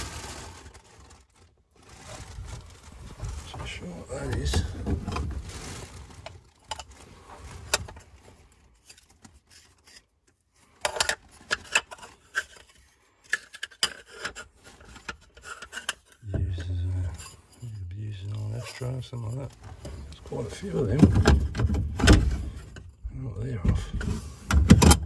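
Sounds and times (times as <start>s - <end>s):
discs rubbing and scraping: 3.5s - 5.2s, 8.8s - 22.8s.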